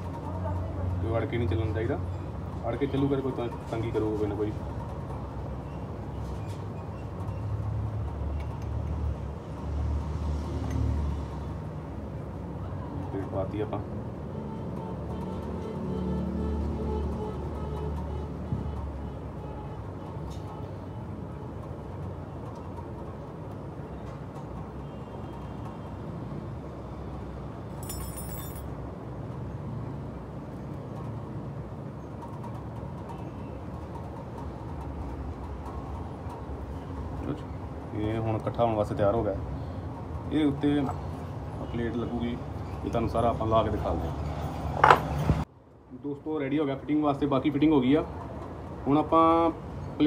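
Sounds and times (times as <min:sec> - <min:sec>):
metal parts clinking: 0:27.7 - 0:28.7
bright ringing clink: 0:27.8 - 0:28.7.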